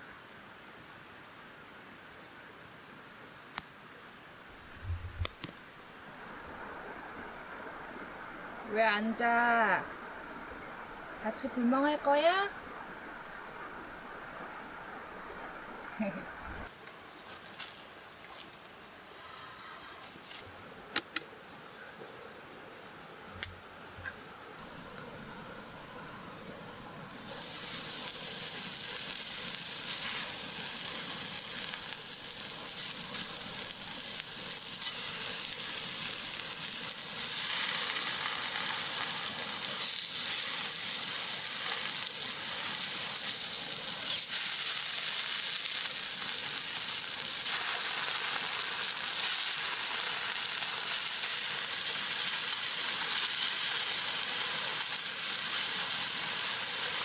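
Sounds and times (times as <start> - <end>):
pork sizzling on griddle: 27.1 - 57.0.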